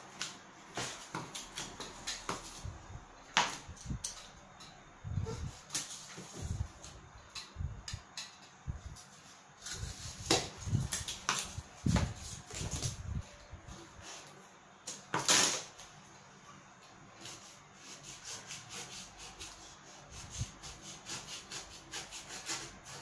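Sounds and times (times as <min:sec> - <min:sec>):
cardboard rustling and scraping: 0:00.7 - 0:02.7, 0:09.0 - 0:14.3.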